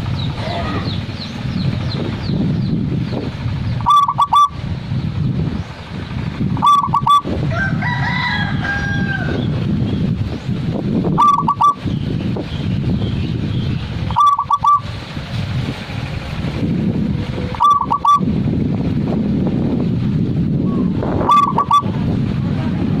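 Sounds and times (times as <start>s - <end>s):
steady low rumble: 0.0s - 23.0s
dove cooing: 3.8s - 4.6s, 6.6s - 7.3s, 11.2s - 11.8s, 14.1s - 14.8s, 17.3s - 18.2s, 20.7s - 21.9s
rooster crowing: 6.6s - 9.6s.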